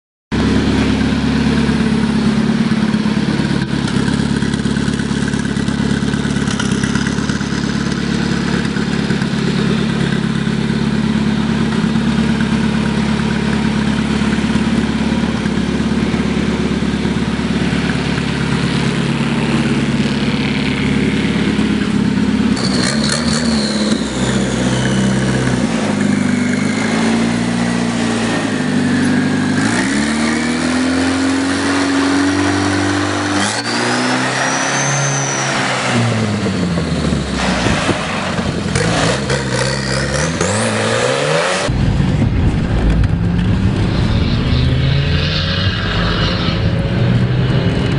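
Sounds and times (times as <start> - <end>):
tractor engine idling and revving: 0.3 - 47.9
turbo whine falling in pitch: 41.7 - 47.9.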